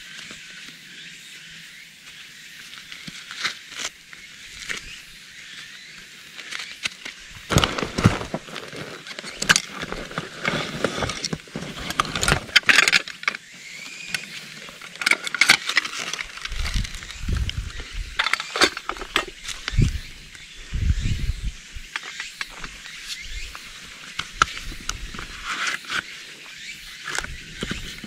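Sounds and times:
fabric and straps rustling: 0:07.5 - 0:12.6.

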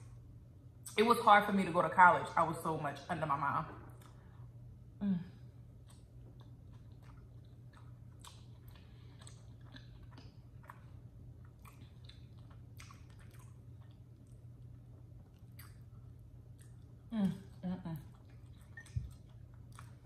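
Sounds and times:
person chewing with mouth clicks: 0:05.8 - 0:20.0.

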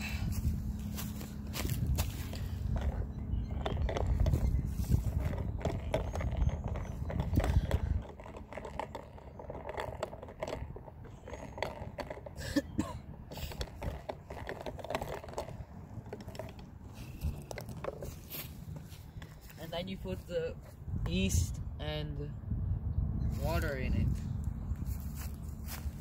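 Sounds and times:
low rumble: 0:00.0 - 0:08.1
stick scraping glass jar: 0:02.8 - 0:12.8, 0:13.4 - 0:18.5.

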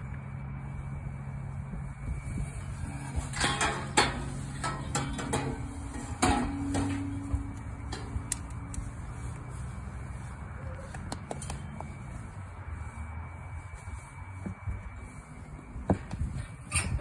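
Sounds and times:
steel cattle chute clanking: 0:02.6 - 0:08.7, 0:16.4 - 0:17.0.

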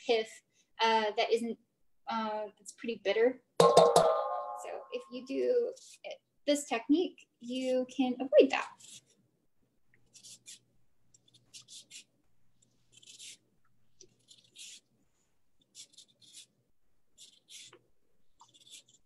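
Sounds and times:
lemon peel zesting on grater: 0:08.5 - 0:09.2, 0:10.1 - 0:14.9, 0:15.6 - 0:16.5, 0:17.2 - 0:19.0.

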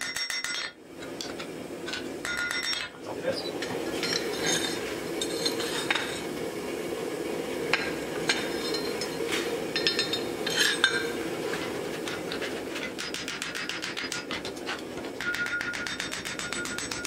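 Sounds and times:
metal clinking on anvil: 0:00.0 - 0:03.0, 0:04.0 - 0:06.2, 0:08.3 - 0:11.2, 0:15.2 - 0:17.0.

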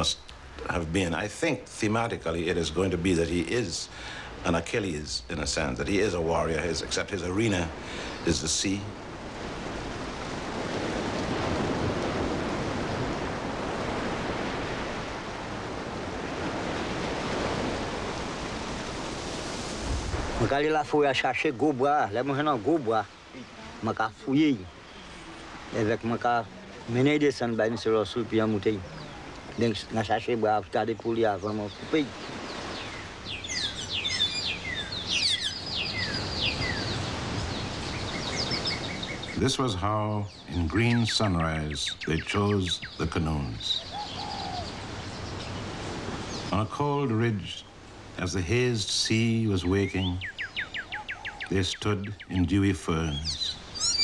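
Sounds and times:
birds chirping: 0:00.0 - 0:54.0
outdoor background noise: 0:00.0 - 0:54.0
sea surf rushing: 0:00.0 - 0:54.0
wind: 0:00.0 - 0:54.0.

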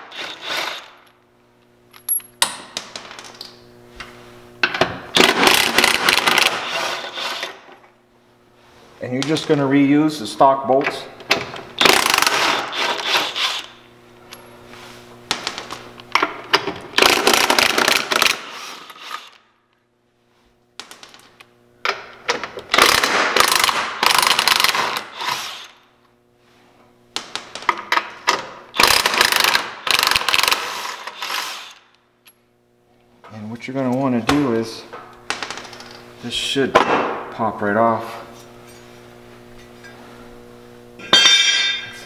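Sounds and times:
impact wrench hammering: 0:04.6 - 0:07.6, 0:11.3 - 0:13.7, 0:22.7 - 0:25.7, 0:27.2 - 0:31.4, 0:41.0 - 0:42.0.

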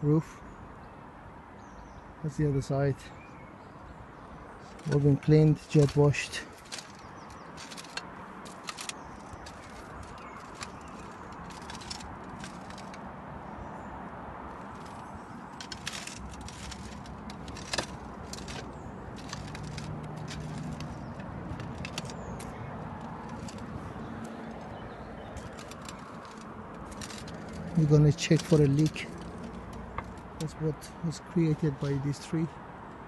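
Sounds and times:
outdoor background rush: 0:00.0 - 0:33.0
light clicks and crackles: 0:04.6 - 0:13.1, 0:14.5 - 0:31.0.

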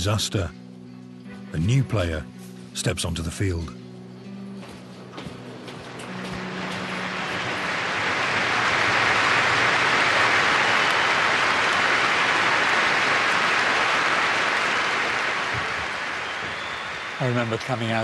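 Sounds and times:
stadium crowd applauding: 0:05.8 - 0:18.0.

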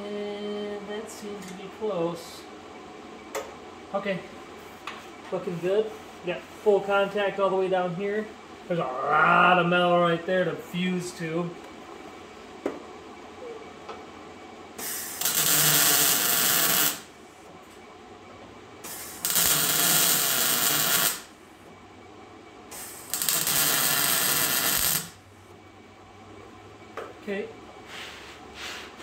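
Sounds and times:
welder crackling hiss: 0:14.8 - 0:17.1, 0:18.8 - 0:21.3, 0:22.7 - 0:25.2.

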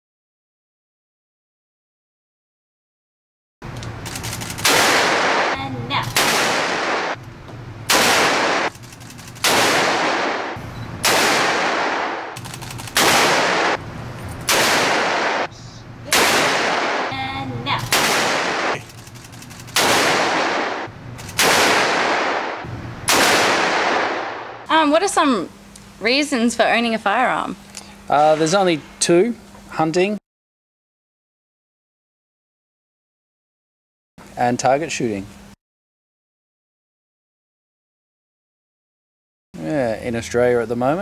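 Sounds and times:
handgun shots echoing indoors: 0:04.6 - 0:07.2, 0:07.9 - 0:08.7, 0:09.4 - 0:13.8, 0:14.5 - 0:15.5, 0:19.8 - 0:24.5.

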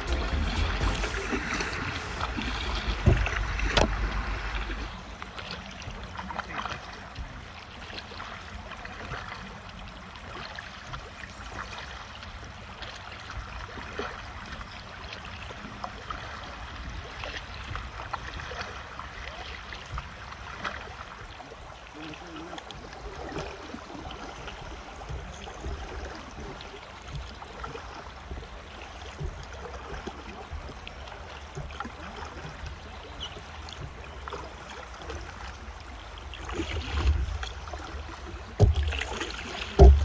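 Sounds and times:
low rumble: 0:00.0 - 0:05.2
paddles dipping and splashing: 0:00.0 - 0:40.0
water lapping and trickling: 0:00.0 - 0:40.0
sharp knocks: 0:38.6 - 0:40.0.

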